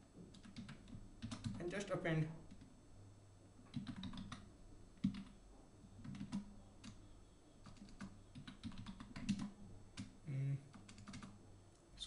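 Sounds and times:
typing on computer keyboard: 0:00.3 - 0:01.7, 0:03.7 - 0:04.4, 0:05.0 - 0:05.4, 0:06.0 - 0:07.0, 0:07.6 - 0:10.1, 0:10.7 - 0:11.4.

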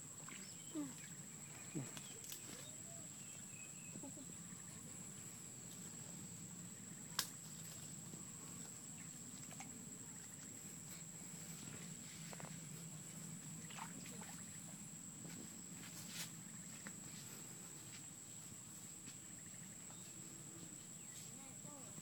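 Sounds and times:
sharp snap of branch: 0:07.2 - 0:07.4.

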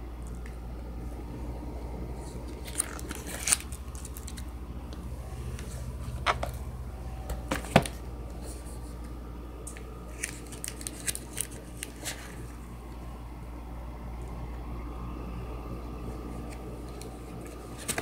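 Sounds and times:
low hum: 0:00.0 - 0:18.0
photo album pages turning: 0:02.2 - 0:09.1, 0:09.7 - 0:12.6, 0:16.2 - 0:18.0.

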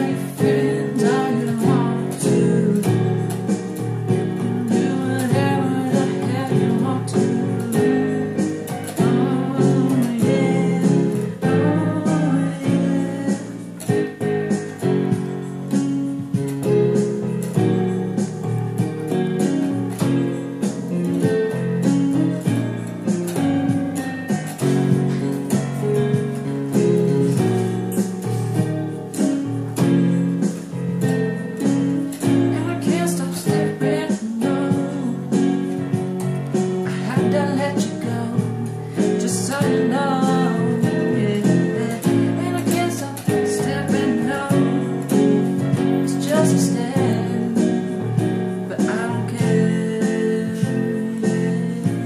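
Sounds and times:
man singing: 0:00.0 - 0:03.1, 0:04.6 - 0:08.0, 0:09.0 - 0:13.6, 0:32.5 - 0:35.6, 0:36.9 - 0:45.3, 0:46.0 - 0:47.9, 0:48.7 - 0:52.0
electronic keyboard playing: 0:00.0 - 0:52.0.

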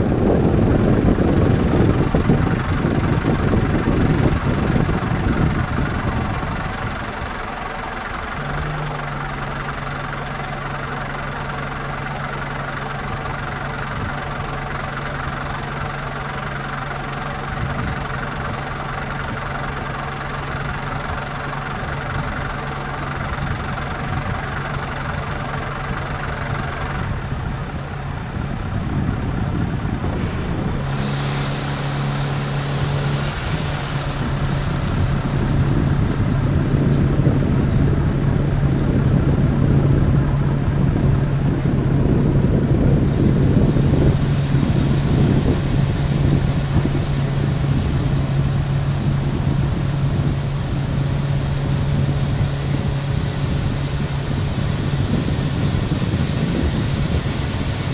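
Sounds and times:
diesel truck engine running: 0:00.0 - 0:57.9
low drone: 0:27.0 - 0:57.9.

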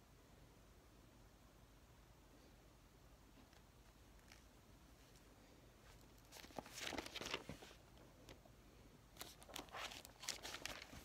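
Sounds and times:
paper rustling and crinkling: 0:05.8 - 0:08.4, 0:09.2 - 0:11.0.

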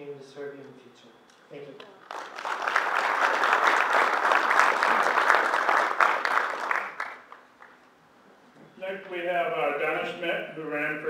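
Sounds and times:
audience applauding: 0:02.0 - 0:07.8.

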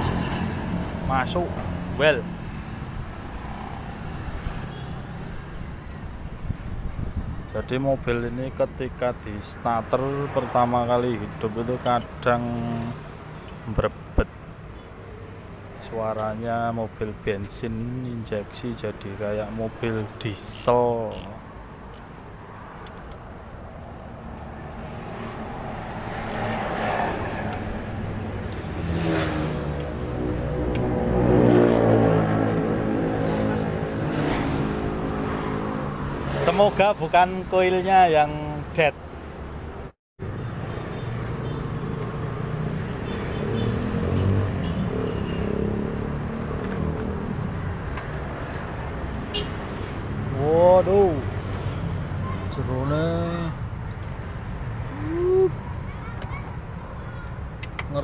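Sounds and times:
man talking: 0:01.0 - 0:02.3, 0:07.5 - 0:13.0, 0:15.8 - 0:21.4, 0:36.4 - 0:39.0, 0:50.3 - 0:51.3
ratchet wrench clicks: 0:20.4 - 0:22.1, 0:26.2 - 0:26.6, 0:28.5 - 0:29.2, 0:31.9 - 0:32.6, 0:43.6 - 0:45.2.

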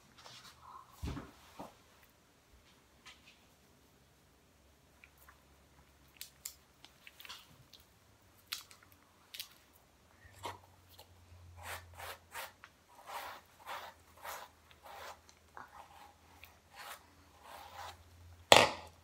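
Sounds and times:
hairbrush strokes through hair: 0:11.6 - 0:18.1.

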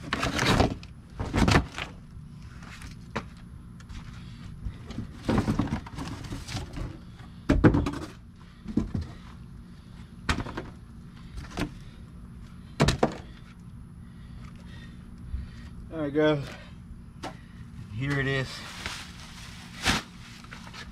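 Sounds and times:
thumps and knocks on a box: 0:04.9 - 0:06.9, 0:07.5 - 0:09.1, 0:10.3 - 0:10.8, 0:12.8 - 0:13.3.

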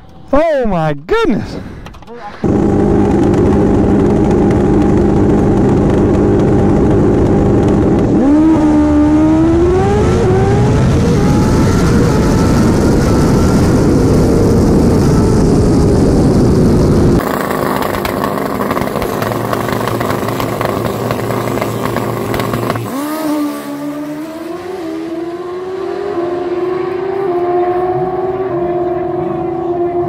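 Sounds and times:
wind noise: 0:01.8 - 0:23.0
motorcycle engine: 0:01.8 - 0:30.0.

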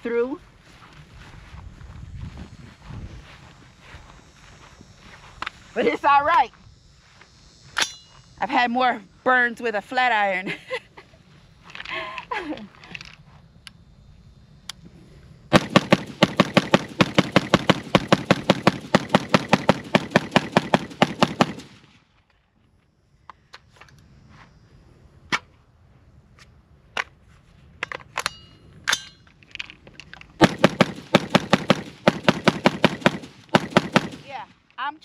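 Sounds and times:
rifle rapid semi-automatic fire: 0:15.5 - 0:21.9, 0:30.4 - 0:34.3
magazine change metallic clicks: 0:27.8 - 0:30.4.

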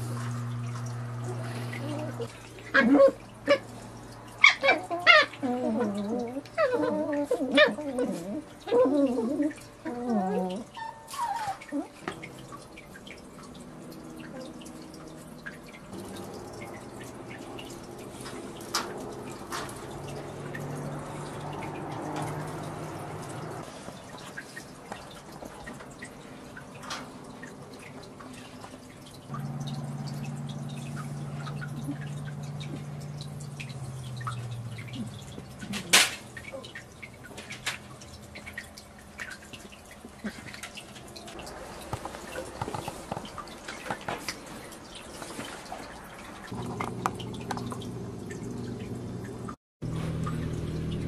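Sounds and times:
steady low hum: 0:00.0 - 0:02.5, 0:29.0 - 0:35.8, 0:46.5 - 0:51.0
low steady hum: 0:00.0 - 0:43.9, 0:46.4 - 0:51.0
puppies clicking and scuffling: 0:00.0 - 0:48.6.

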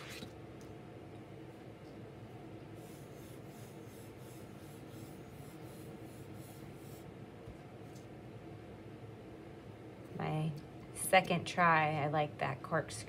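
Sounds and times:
pencil scratching on paper: 0:02.8 - 0:07.0.

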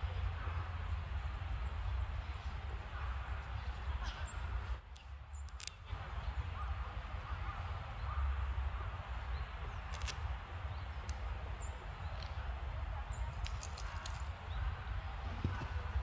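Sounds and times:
sharp clicks: 0:04.9 - 0:05.8.

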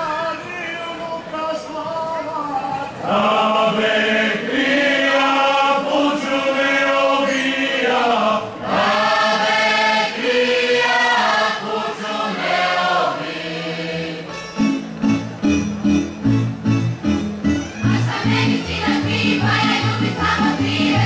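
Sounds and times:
group singing unaccompanied: 0:03.0 - 0:14.3, 0:17.9 - 0:21.0
string band playing: 0:14.2 - 0:21.0.

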